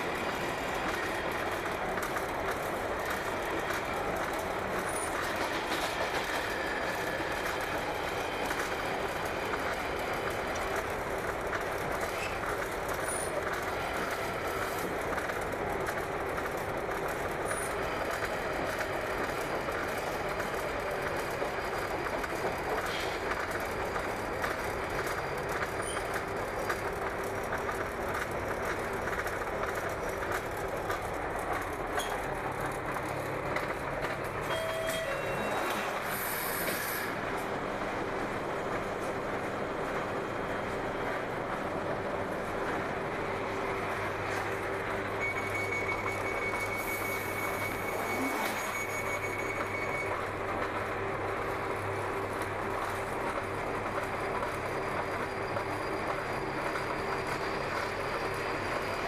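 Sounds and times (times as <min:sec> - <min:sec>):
train rumbling in tunnel: 0:00.0 - 0:59.0
wheel and brake squeals: 0:04.8 - 0:07.6, 0:12.0 - 0:12.4, 0:25.0 - 0:26.8, 0:34.4 - 0:37.2, 0:45.2 - 0:50.6, 0:54.4 - 0:59.0.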